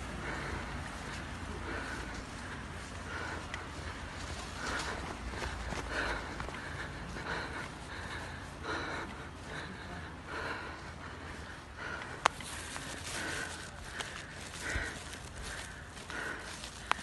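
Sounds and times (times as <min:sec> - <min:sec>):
footsteps on pavement: 0:00.0 - 0:17.0
person breathing: 0:00.0 - 0:17.0.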